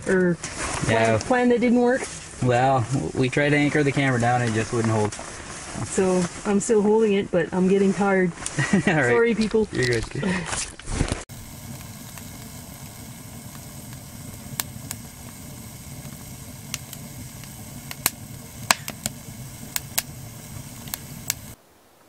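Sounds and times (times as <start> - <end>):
fire crackling and popping: 0.4 - 6.6, 9.4 - 21.6
low rush of flame: 11.3 - 21.6.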